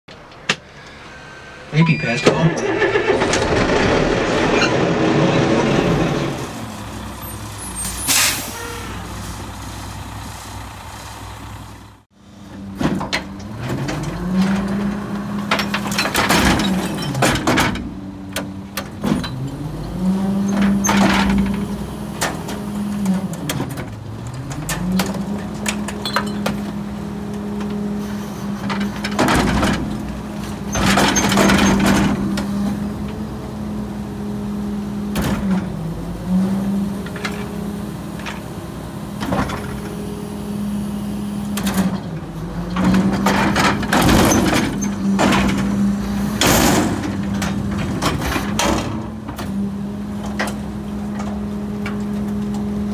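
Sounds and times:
truck engine running: 0:09.0 - 0:52.9
equipment clattering and banging: 0:12.7 - 0:19.5, 0:23.4 - 0:26.8, 0:28.6 - 0:32.6, 0:41.6 - 0:49.5.

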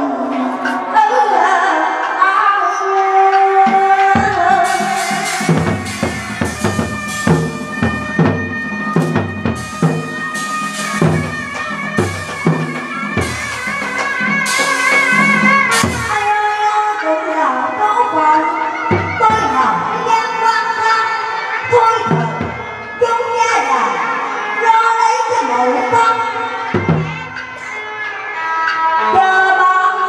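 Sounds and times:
drum strikes: 0:03.6 - 0:16.6, 0:18.9 - 0:19.7, 0:26.7 - 0:27.8
cymbal clashes: 0:04.2 - 0:17.0
shrill double-reed melody: 0:04.3 - 0:16.8.

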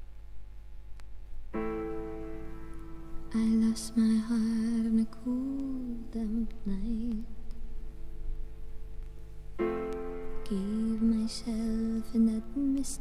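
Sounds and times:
soft music: 0:01.5 - 0:13.0.

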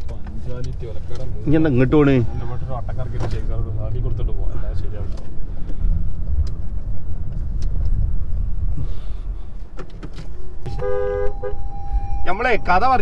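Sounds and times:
car engine and road rumble: 0:00.0 - 0:13.0
steady electronic tone: 0:02.0 - 0:02.8, 0:10.7 - 0:13.0
electronic beep: 0:02.1 - 0:02.8, 0:10.7 - 0:13.0.

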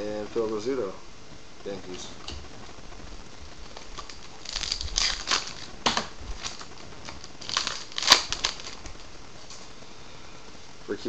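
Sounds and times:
wrapper tearing and crinkling: 0:03.2 - 0:09.7.

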